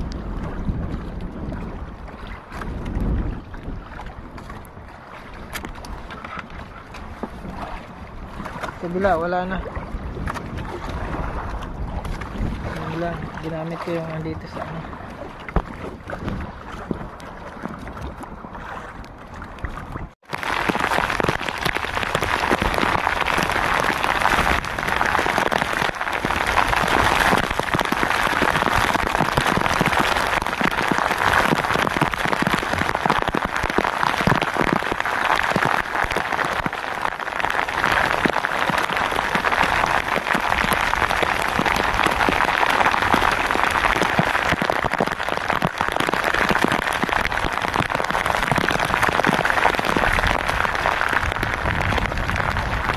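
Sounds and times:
heavy rain pattering: 0:20.2 - 0:52.9.

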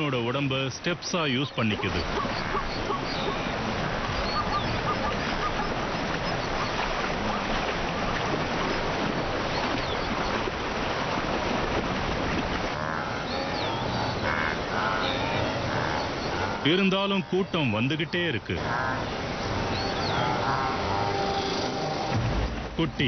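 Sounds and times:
river water splashing: 0:00.0 - 0:23.0
animal calls: 0:01.5 - 0:08.2, 0:12.8 - 0:17.6, 0:18.6 - 0:22.2.

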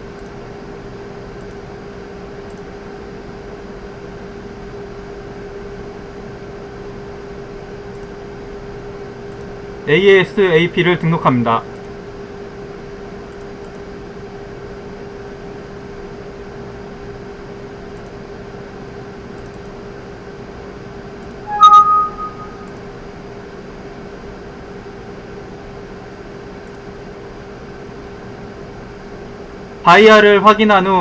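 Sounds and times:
electrical hum and hiss: 0:00.0 - 0:20.7, 0:25.0 - 0:31.0
two-tone electronic chime: 0:21.5 - 0:22.7.

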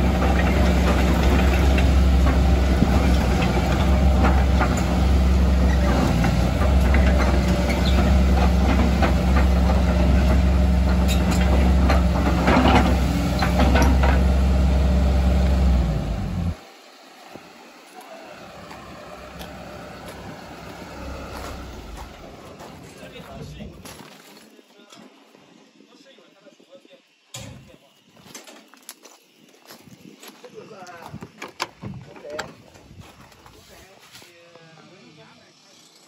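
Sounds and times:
excavator diesel engine running: 0:00.0 - 0:23.8.

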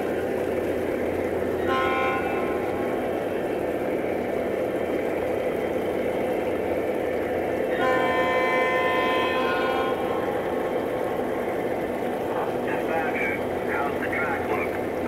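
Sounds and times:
diesel engine rumble: 0:00.0 - 0:15.0
locomotive horn blast: 0:01.3 - 0:03.8, 0:07.6 - 0:11.5.

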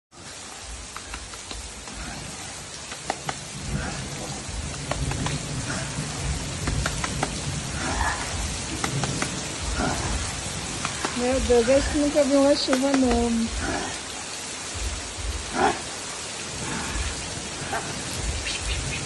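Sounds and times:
heavy rain on concrete: 0:00.1 - 0:19.0
raindrops tapping close by: 0:00.1 - 0:19.0.

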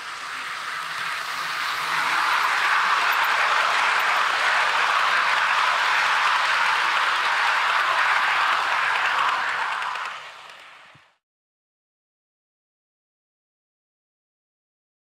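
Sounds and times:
model train wheels rattling on rails: 0:00.0 - 0:11.1.

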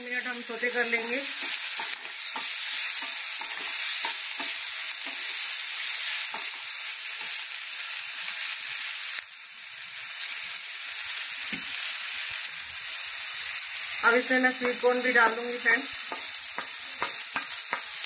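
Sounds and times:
vegetables sizzling in oil: 0:00.0 - 0:18.0
spatula scraping and tapping pan: 0:01.0 - 0:05.4, 0:06.2 - 0:06.6, 0:14.5 - 0:14.9, 0:16.0 - 0:18.0.

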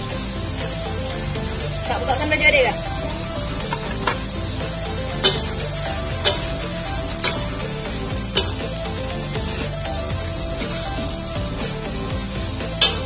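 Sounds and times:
vegetables sizzling in a wok: 0:00.0 - 0:13.0
metal spatula clanking on pan: 0:05.2 - 0:05.6, 0:06.2 - 0:06.6, 0:08.4 - 0:08.7, 0:12.8 - 0:13.0.

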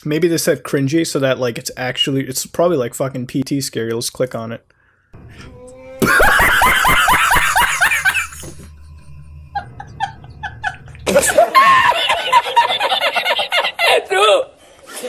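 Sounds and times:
man laughing hard: 0:06.0 - 0:14.4.

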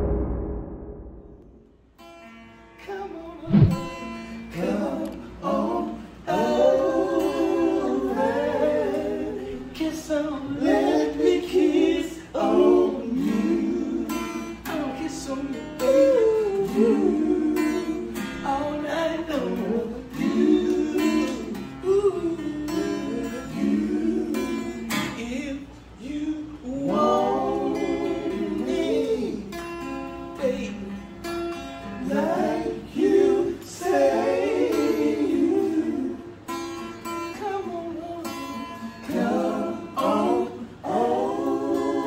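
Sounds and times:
acoustic guitar blues: 0:02.0 - 0:42.0
man singing: 0:14.7 - 0:23.6.

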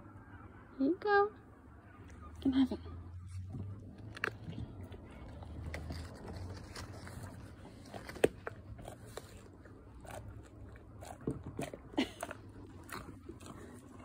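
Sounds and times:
dog chewing and biting: 0:03.4 - 0:14.0.

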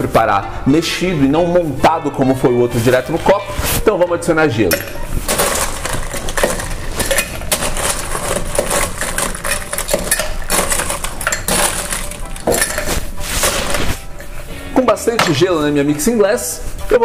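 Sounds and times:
ice cubes clinking in glass: 0:04.7 - 0:14.0.

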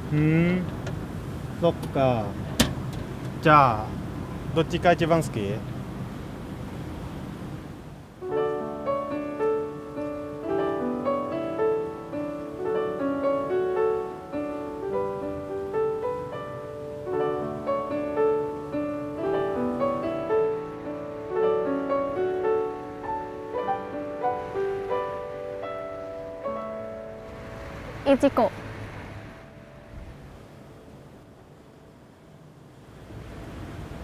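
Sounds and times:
background piano music: 0:08.2 - 0:33.2.

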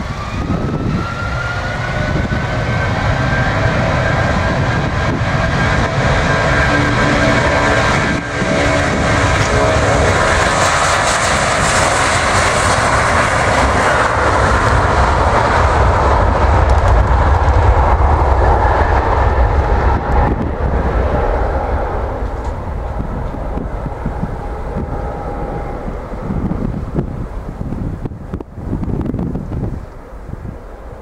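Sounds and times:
jet engines at takeoff: 0:00.0 - 0:31.0.

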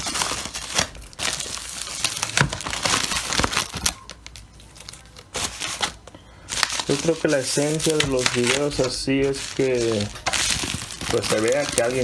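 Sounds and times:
packaging crinkling and rustling: 0:00.0 - 0:12.0.

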